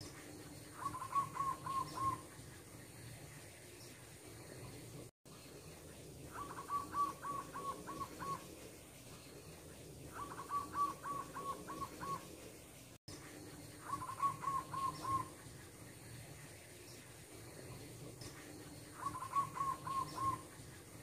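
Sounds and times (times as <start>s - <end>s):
dove cooing: 0.6s - 3.3s, 6.2s - 12.4s, 13.6s - 16.3s, 17.3s - 21.0s.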